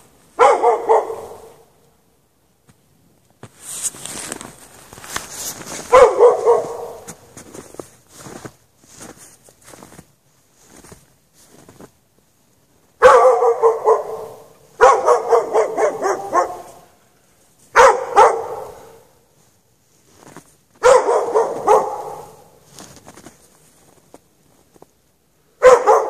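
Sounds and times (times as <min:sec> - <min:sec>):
dog barking: 0:00.4 - 0:01.7, 0:05.8 - 0:07.2, 0:13.0 - 0:17.0, 0:17.7 - 0:19.2, 0:20.8 - 0:22.6, 0:25.6 - 0:26.0.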